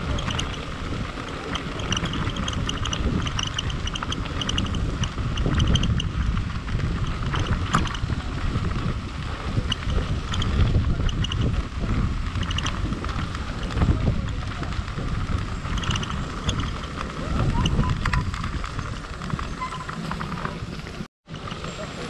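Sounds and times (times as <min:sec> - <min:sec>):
wind buffeting the microphone: 0:00.0 - 0:22.0
high squeaks: 0:17.4 - 0:20.6.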